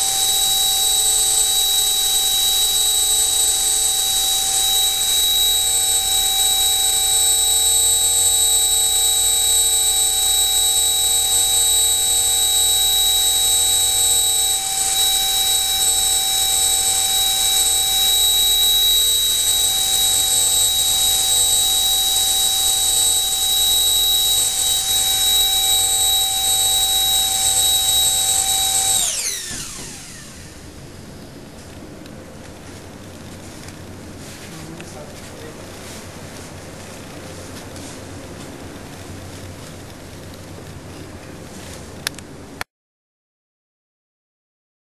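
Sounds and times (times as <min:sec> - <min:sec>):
electric ducted fan whine: 0:00.0 - 0:42.7.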